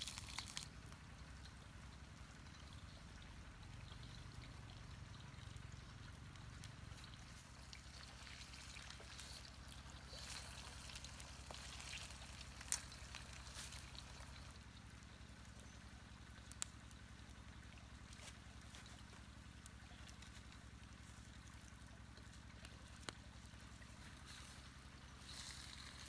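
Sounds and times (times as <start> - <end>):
fire crackling: 0.0 - 0.7, 9.2 - 14.5, 16.4 - 16.9.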